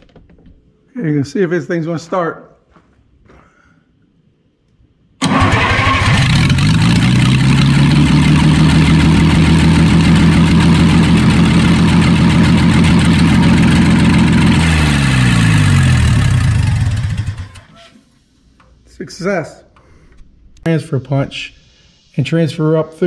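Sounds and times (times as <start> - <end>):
engine starting and running: 5.2 - 17.9.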